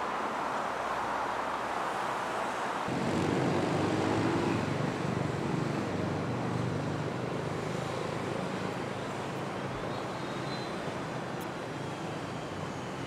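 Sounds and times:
traffic hiss: 0.0 - 13.0
heavy vehicle engine drone: 2.9 - 9.0.

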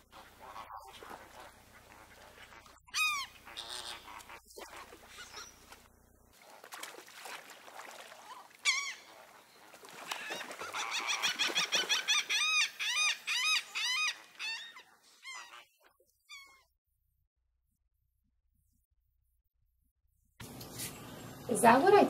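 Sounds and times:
bird honking calls: 0.1 - 5.7, 8.6 - 9.2.

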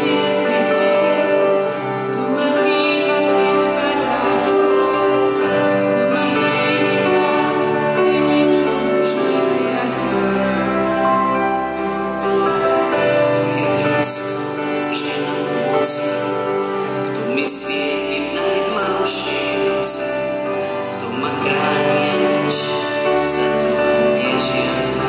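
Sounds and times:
woman singing into microphone: 0.0 - 11.2
keyboard accompaniment: 0.0 - 25.0
man singing: 0.0 - 25.0.

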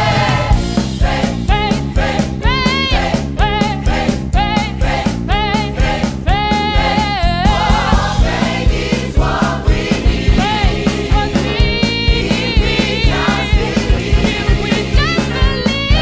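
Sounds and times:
gospel choir singing: 0.0 - 16.0
steady beat with bass: 0.0 - 16.0.

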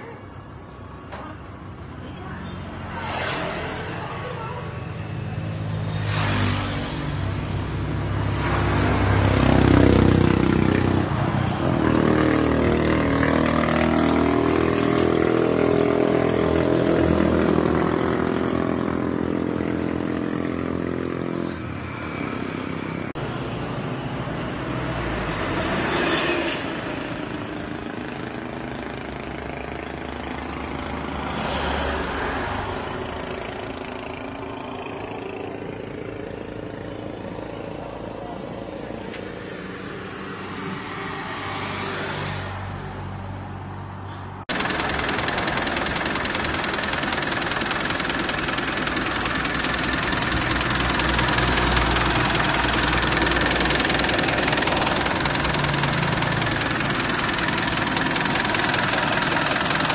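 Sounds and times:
diesel engine revving: 5.0 - 23.2, 44.5 - 59.9.

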